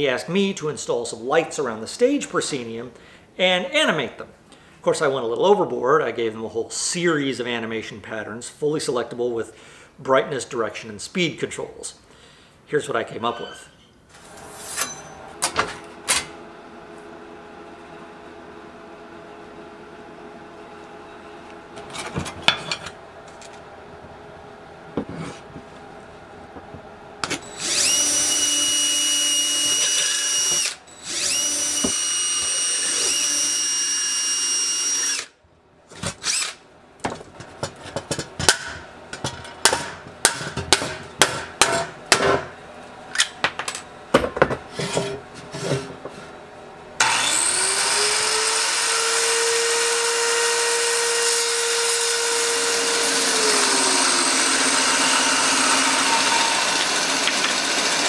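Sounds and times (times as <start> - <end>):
bandsaw cutting wood: 27.2 - 35.4, 36.1 - 36.6, 47.0 - 58.0
power drill whining: 27.3 - 35.4, 36.2 - 36.6, 47.0 - 58.0.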